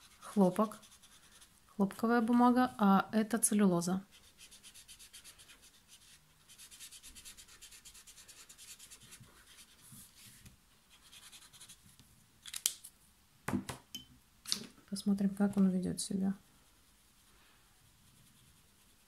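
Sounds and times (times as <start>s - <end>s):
brush pen scratching paper: 0.0s - 1.5s, 4.1s - 11.8s, 16.7s - 19.0s.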